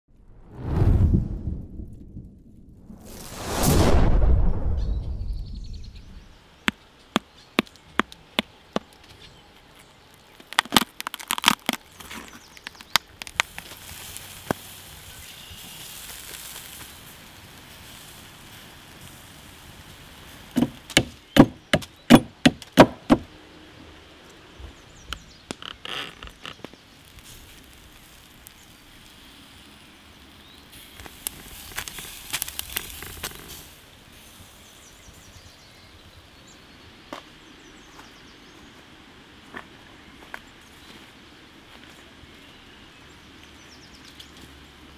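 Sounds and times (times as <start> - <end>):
crackling: 0.1 - 21.6, 25.1 - 33.9
sharp chopping strikes: 20.6 - 23.3.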